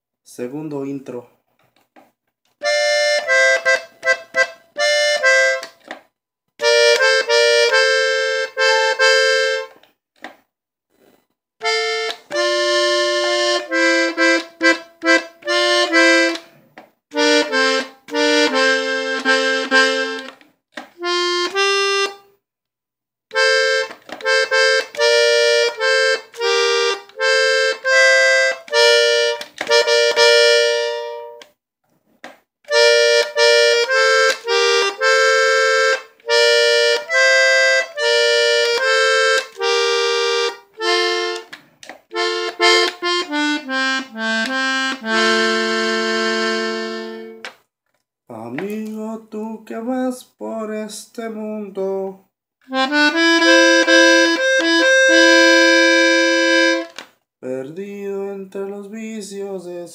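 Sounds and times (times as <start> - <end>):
button accordion melody: 2.6 - 5.8, 6.6 - 9.8, 11.0 - 22.3, 23.3 - 31.5, 32.7 - 47.6, 52.6 - 57.2.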